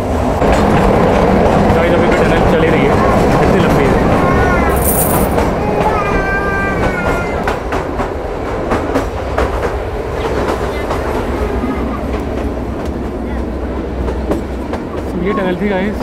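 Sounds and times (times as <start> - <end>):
train rumble in tunnel: 0.0 - 16.0
wheels clickety-clack on rails: 0.0 - 16.0.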